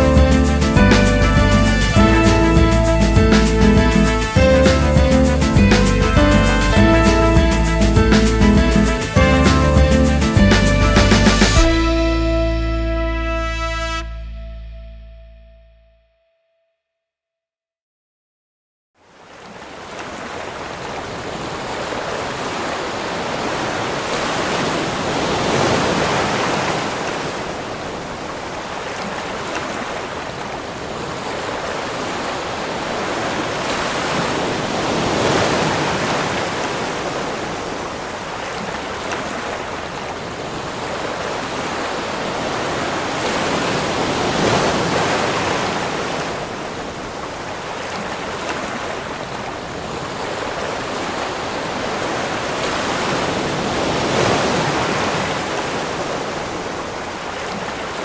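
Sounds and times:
waves crashing on rocky shore: 0:19.2 - 0:58.0.

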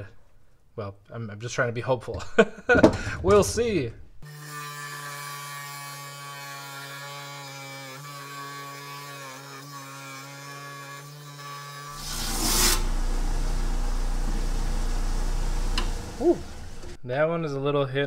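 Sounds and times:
diamond blade cutting stone: 0:04.2 - 0:13.0
electric motor humming: 0:11.9 - 0:17.0.

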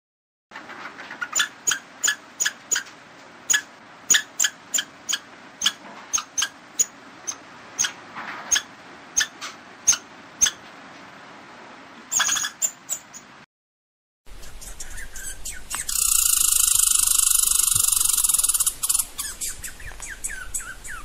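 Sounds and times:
squirrel chirping: 0:01.3 - 0:02.9, 0:03.5 - 0:10.6, 0:12.1 - 0:13.3, 0:14.3 - 0:21.0.

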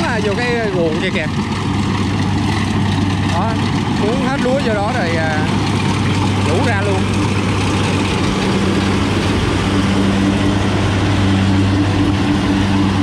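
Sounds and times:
combine harvester drone: 0:00.0 - 0:13.0.

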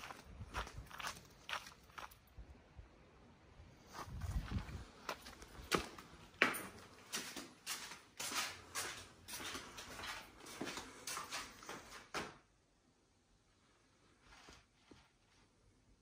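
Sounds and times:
footsteps walking: 0:00.0 - 0:02.2, 0:03.9 - 0:12.4.

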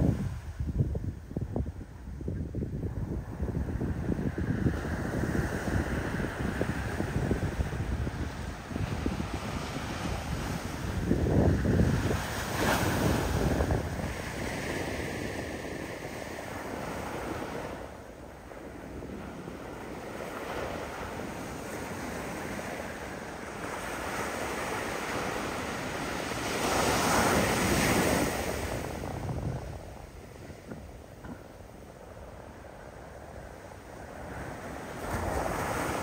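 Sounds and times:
ocean surf breaking on beach: 0:00.0 - 0:36.0
wind on microphone: 0:00.0 - 0:36.0.

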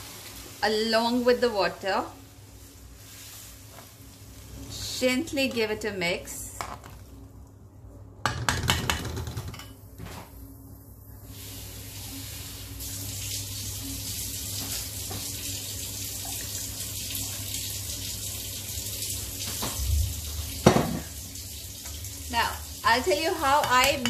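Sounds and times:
liquid simmering with a hiss: 0:00.0 - 0:01.5, 0:02.2 - 0:05.1, 0:10.3 - 0:23.6.

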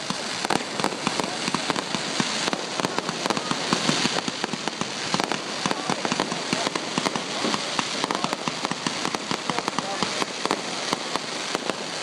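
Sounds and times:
continuous hiss: 0:00.0 - 0:12.0
fireworks crackling: 0:00.0 - 0:12.0.

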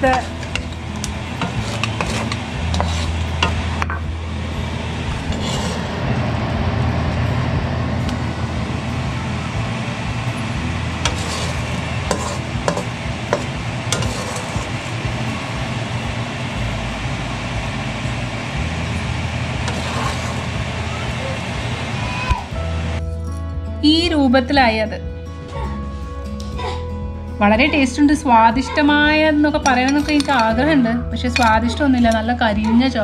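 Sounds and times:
low hum: 0:00.0 - 0:23.5
spatula scraping rice in wok: 0:01.3 - 0:03.6, 0:05.2 - 0:05.9, 0:11.0 - 0:14.9, 0:19.6 - 0:20.6.

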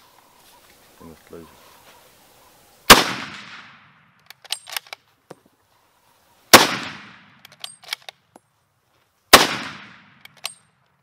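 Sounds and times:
rifle shot: 0:02.9 - 0:04.8, 0:06.5 - 0:08.0, 0:09.3 - 0:10.5
rifle bolt metallic clicks: 0:03.5 - 0:05.0, 0:07.3 - 0:08.3, 0:09.8 - 0:11.0.

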